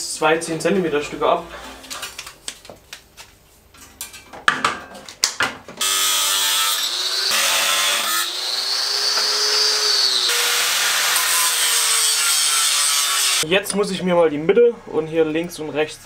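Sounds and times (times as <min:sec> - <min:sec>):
angle grinder cutting steel: 0:05.8 - 0:13.4.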